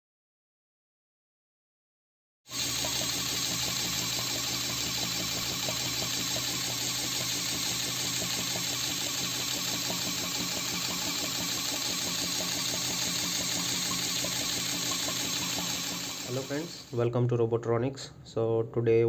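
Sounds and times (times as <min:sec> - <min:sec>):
small motor air pump whirring: 0:02.5 - 0:17.0.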